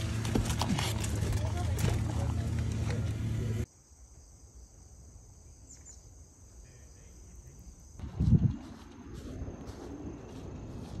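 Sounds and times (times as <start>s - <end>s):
insects chirring: 3.6s - 8.0s
wind on microphone: 8.0s - 11.0s.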